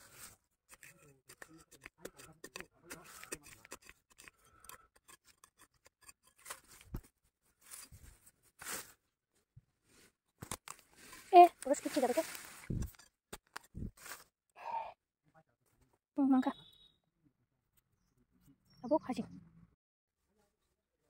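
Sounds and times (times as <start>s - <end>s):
hand tool scraping dry soil: 0.0s - 9.0s, 10.5s - 14.3s.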